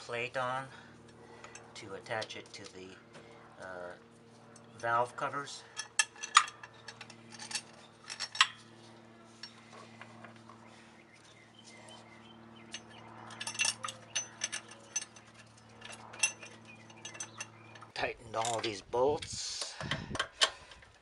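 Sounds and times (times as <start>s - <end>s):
steady low hum: 0.0s - 21.0s
metal bolts clinking: 5.6s - 8.7s, 12.7s - 18.8s.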